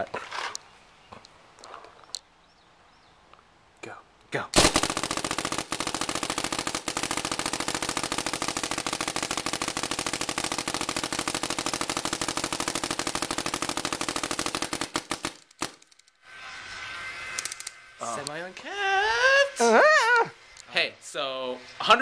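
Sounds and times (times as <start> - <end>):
paintball marker firing: 4.6 - 16.0.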